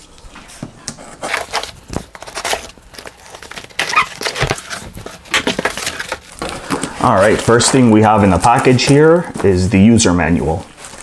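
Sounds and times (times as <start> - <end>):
cardboard flaps scraping: 0.5 - 11.0
packing tape ripping: 1.2 - 9.0.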